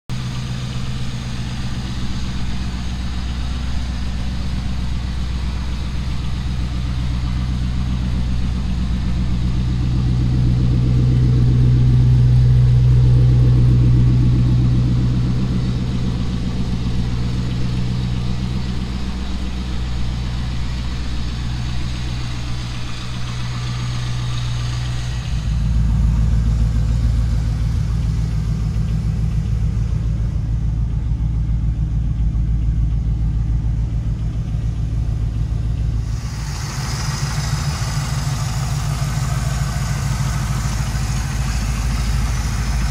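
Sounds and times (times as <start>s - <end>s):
car engine idling: 0.1s - 42.9s.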